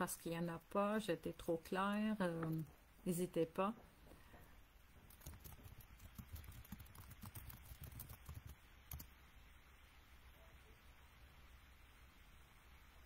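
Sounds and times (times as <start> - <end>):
keyboard typing and clicking: 5.1 - 9.1.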